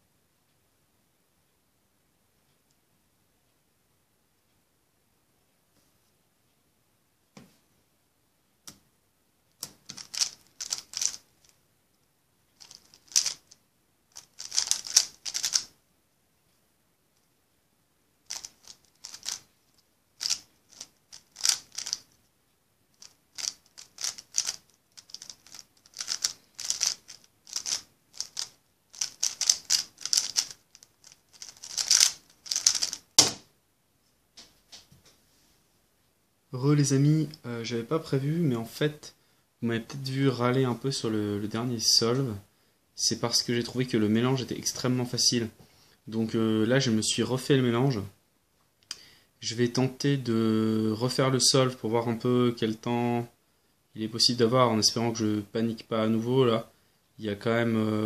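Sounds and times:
puzzle cube plastic clacking: 9.6s - 11.3s, 12.6s - 15.7s, 18.3s - 19.5s, 20.2s - 22.1s, 23.0s - 33.4s
sharp knock: 33.2s - 33.5s.

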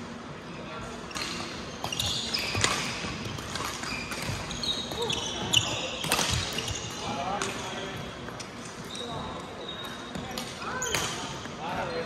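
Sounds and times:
shoes squeaking on floor: 1.1s - 7.1s, 8.8s - 11.3s
racket hitting shuttlecock: 6.0s - 6.6s.

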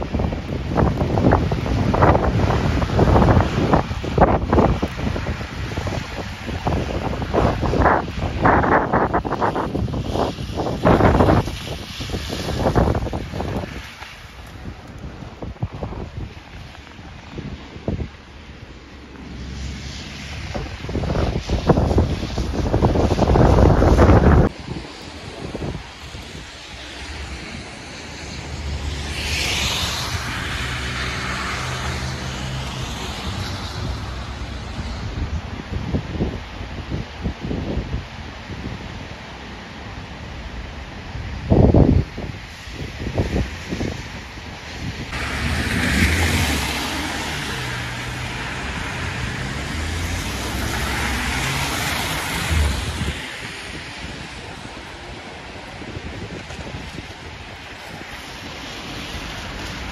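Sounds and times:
tyres hissing on wet road: 0.0s - 59.9s
wind rumble on microphone: 0.0s - 59.9s
vehicle engine hum: 44.8s - 59.9s.

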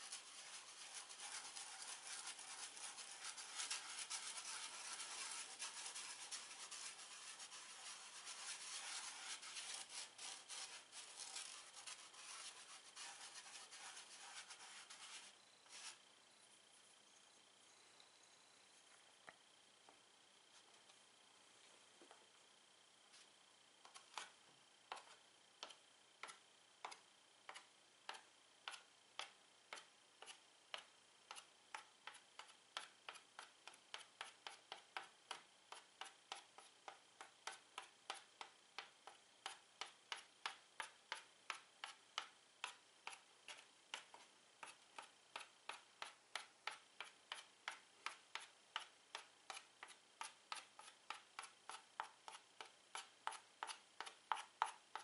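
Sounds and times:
chalk tapping on chalkboard: 0.0s - 16.0s, 23.8s - 24.3s, 24.9s - 55.0s.

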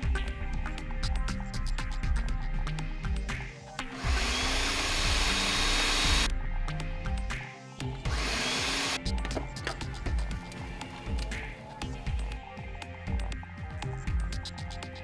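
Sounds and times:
background music with beat: 0.0s - 15.0s
blender motor whining: 4.0s - 6.3s, 8.1s - 9.0s.

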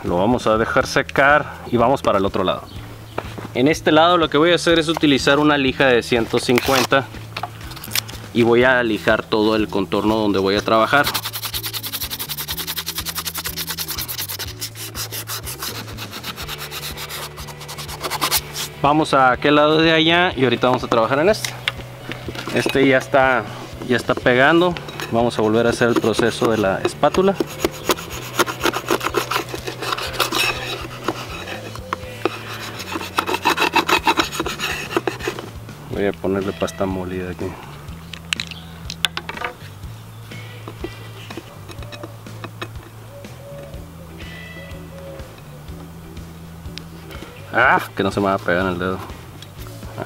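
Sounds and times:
putty knife scraping plastic: 6.5s - 7.0s, 10.7s - 18.7s, 23.8s - 35.5s, 40.7s - 42.8s
hand sanding plastic: 10.4s - 18.7s, 23.8s - 35.5s.

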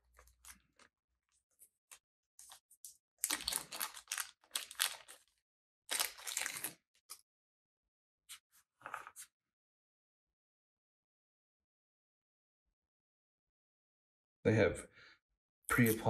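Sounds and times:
plastic bag crinkling: 3.2s - 6.8s.

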